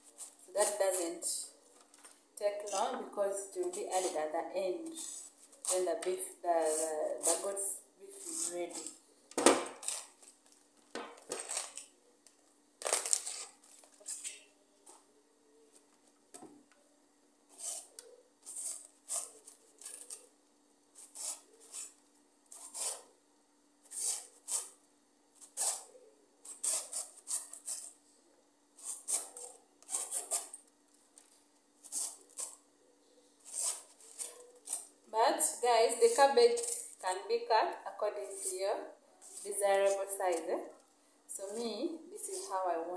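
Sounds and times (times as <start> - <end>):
knife slicing cabbage: 0.0 - 1.2, 4.8 - 10.4, 17.5 - 20.3, 21.0 - 23.1, 23.9 - 24.8, 25.4 - 28.0, 28.8 - 30.6, 31.8 - 32.6, 33.4 - 34.9.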